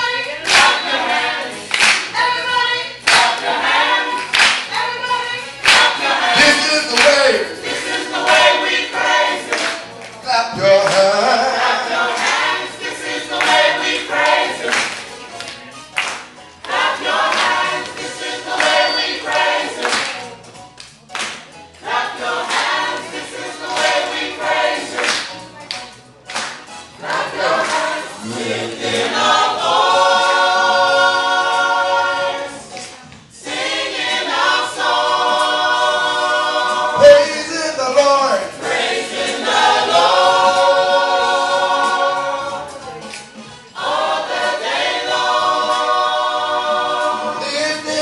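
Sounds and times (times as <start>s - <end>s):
gospel choir singing: 0.0s - 20.5s, 21.2s - 48.0s
hand claps: 0.4s - 1.0s, 1.7s - 2.2s, 3.0s - 3.5s, 4.2s - 4.8s, 5.6s - 7.4s, 9.4s - 10.2s, 10.8s - 11.2s, 12.1s - 12.5s, 13.4s - 21.6s, 23.7s - 24.0s, 24.8s - 26.7s, 43.0s - 43.4s.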